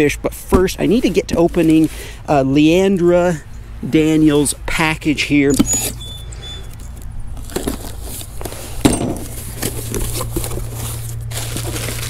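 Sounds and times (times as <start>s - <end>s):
plastic wrapping rustling: 7.0s - 12.0s
cardboard box being opened: 7.4s - 12.0s.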